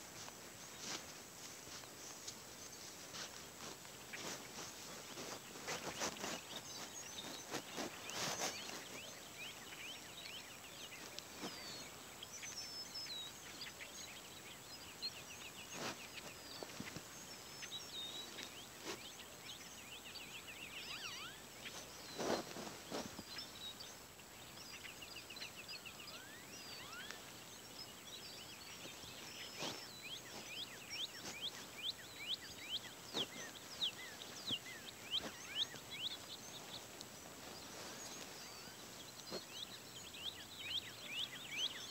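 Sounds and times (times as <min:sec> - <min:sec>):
footsteps in dry grass: 0:00.0 - 0:41.9
small birds chirping: 0:00.0 - 0:41.9.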